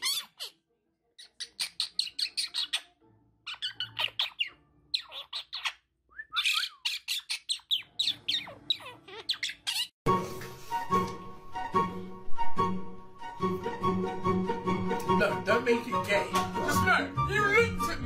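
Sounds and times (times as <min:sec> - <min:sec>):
parrot chirping and squawking: 0:00.0 - 0:10.0.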